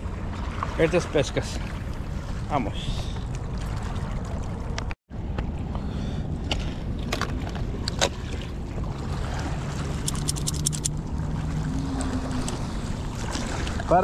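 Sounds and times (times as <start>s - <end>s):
quick ticks: 10.0s - 10.9s.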